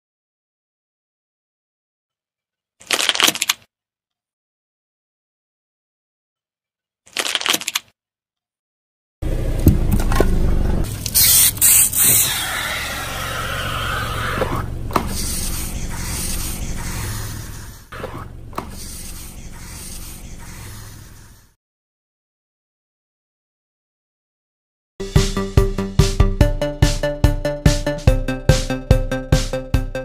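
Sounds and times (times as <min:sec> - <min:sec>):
sharp hiss: 0:11.1 - 0:13.4.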